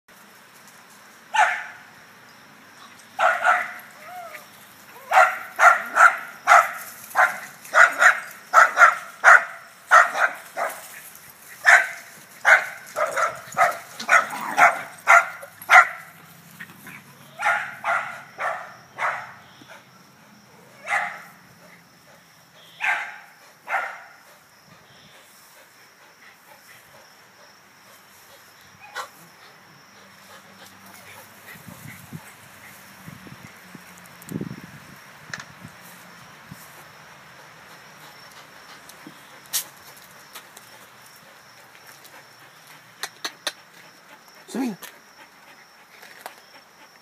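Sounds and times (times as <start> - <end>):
dog barking sharply: 5.1 - 10.7.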